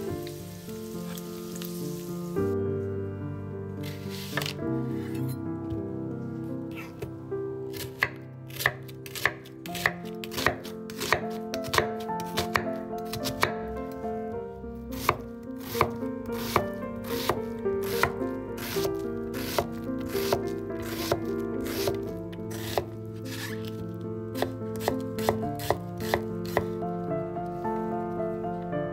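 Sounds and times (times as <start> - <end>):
background music: 0.0 - 28.9
knife cutting onion on wooden board: 3.8 - 5.4, 7.7 - 13.6, 14.9 - 23.8, 24.4 - 26.8.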